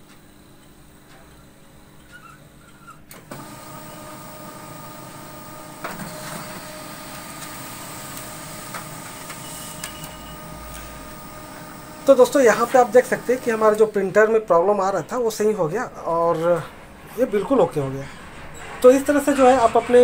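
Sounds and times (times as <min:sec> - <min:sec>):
laser printer running: 0:00.0 - 0:16.2
printer clicks: 0:03.1 - 0:13.8.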